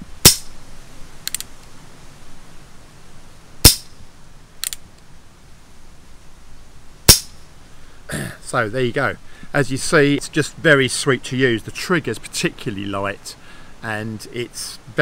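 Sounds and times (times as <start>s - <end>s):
air pistol shots: 0.2s - 0.5s, 3.6s - 3.9s, 7.1s - 7.4s
revolver hammer cocking clicks: 1.2s - 1.5s, 4.6s - 4.8s.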